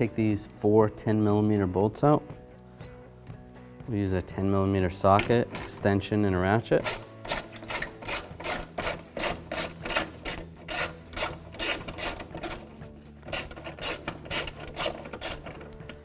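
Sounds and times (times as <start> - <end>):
hand ratchet ratcheting: 5.2 - 5.9, 6.8 - 16.0.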